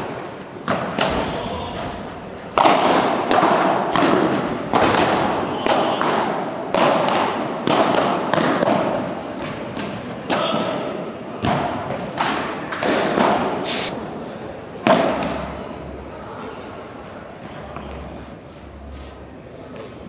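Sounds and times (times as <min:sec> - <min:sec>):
padel racket hitting ball: 0:02.6 - 0:10.8, 0:11.4 - 0:13.6.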